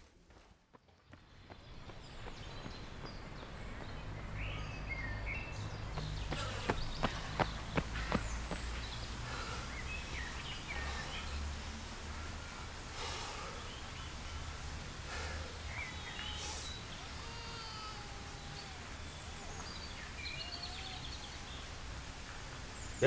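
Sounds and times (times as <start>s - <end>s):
birds chirping and singing: 1.7s - 23.0s
heavy breathing: 6.1s - 18.5s.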